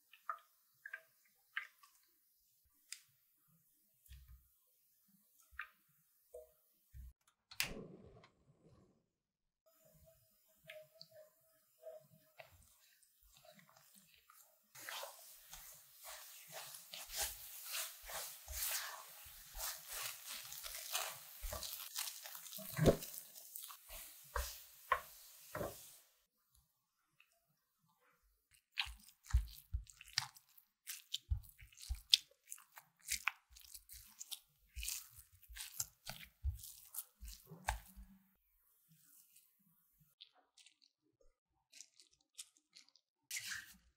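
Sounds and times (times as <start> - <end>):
spatula scraping custard in saucepan: 10.5 - 26.1, 28.6 - 38.2
spatula squishing filling in glass bowl: 12.4 - 25.8, 28.6 - 38.1.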